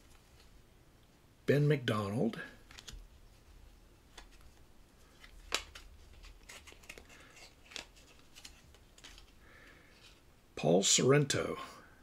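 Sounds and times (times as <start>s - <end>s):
cardboard cards sliding and flicking: 4.1s - 9.3s.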